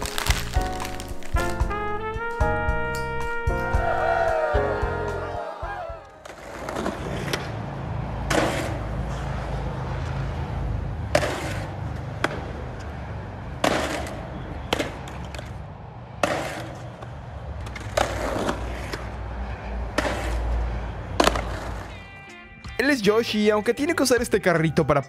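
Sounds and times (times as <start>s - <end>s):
skateboard wheels rumbling on concrete: 0.0s - 1.9s, 6.2s - 22.1s.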